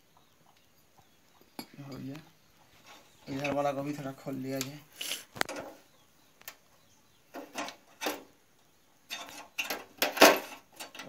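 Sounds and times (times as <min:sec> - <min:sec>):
metal tools clicking on burner: 0:09.1 - 0:11.0.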